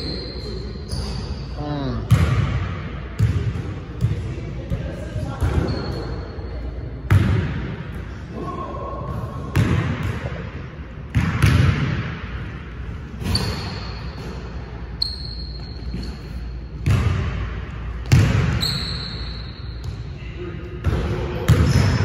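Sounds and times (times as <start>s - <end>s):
shoe squeaks: 0.0s - 1.6s, 5.6s - 6.4s, 13.2s - 14.3s, 15.0s - 16.7s, 18.6s - 20.1s.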